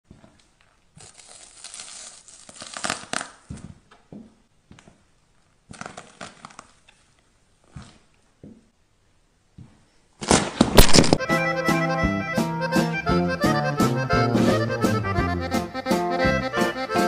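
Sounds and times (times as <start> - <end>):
shoe crushing mushrooms on floor: 0.1 - 5.0, 9.6 - 11.2.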